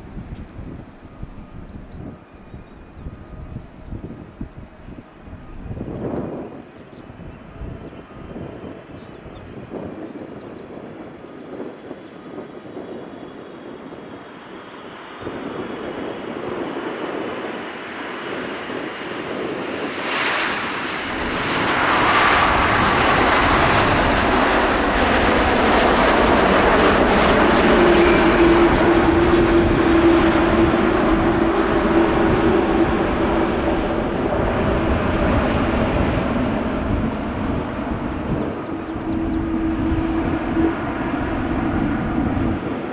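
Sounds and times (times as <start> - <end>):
jet engines roaring: 0.0 - 42.9.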